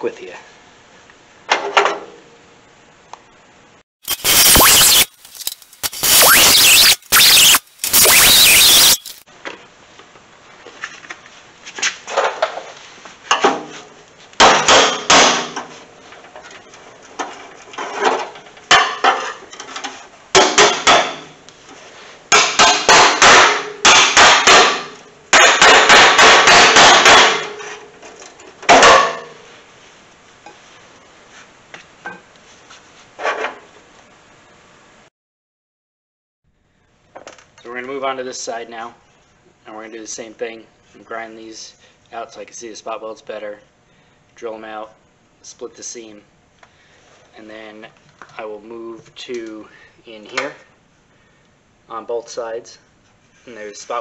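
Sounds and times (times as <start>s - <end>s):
hammering on sheet steel: 14.4s - 15.6s, 22.3s - 27.6s.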